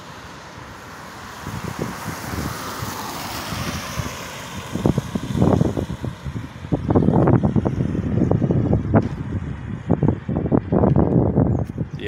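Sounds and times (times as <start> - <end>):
car tyres hissing on wet road: 0.0 - 9.4
wind rumble on microphone: 0.6 - 12.0.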